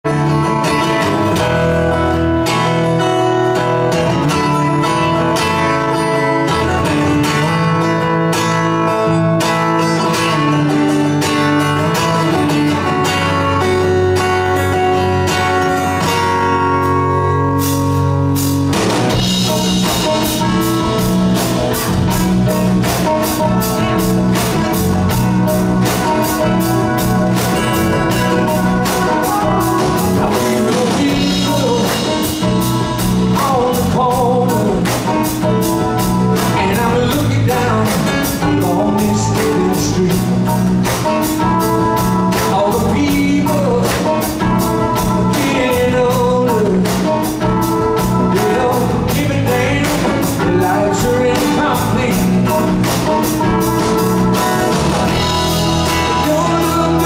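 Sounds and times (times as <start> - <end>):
rock band on guitars: 0.0 - 57.0
steady drum beat: 17.6 - 57.0.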